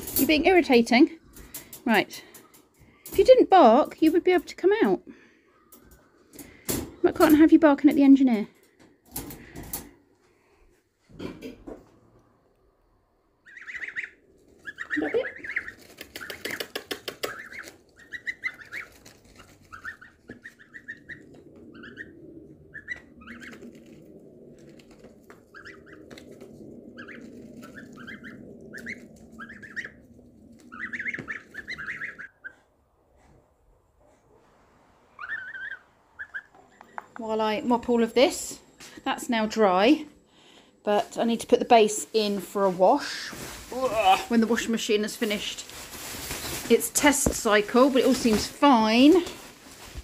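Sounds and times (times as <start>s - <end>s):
goslings peeping: 13.4s - 24.0s, 24.8s - 32.7s, 35.2s - 36.9s.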